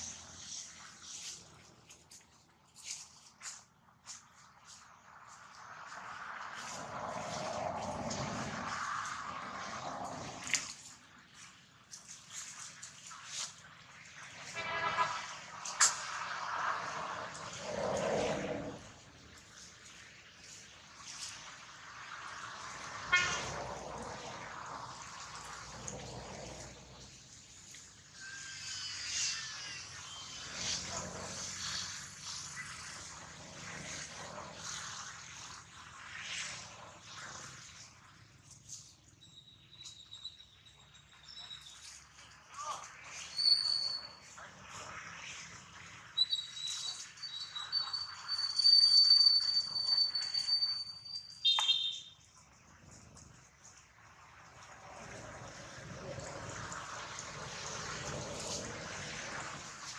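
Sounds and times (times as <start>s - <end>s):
high-pitched downward sliding calls: 46.2s - 52.2s.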